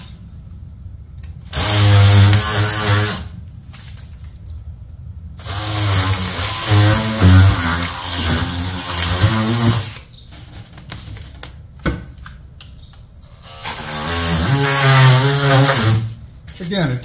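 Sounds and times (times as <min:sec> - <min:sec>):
oscillating multi-tool buzzing: 0:05.4 - 0:10.0.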